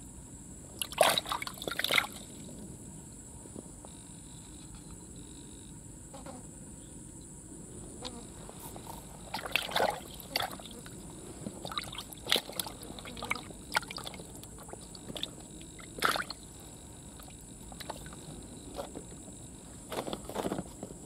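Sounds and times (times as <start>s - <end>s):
water sloshing and splashing: 0.8s - 2.5s, 8.5s - 21.0s.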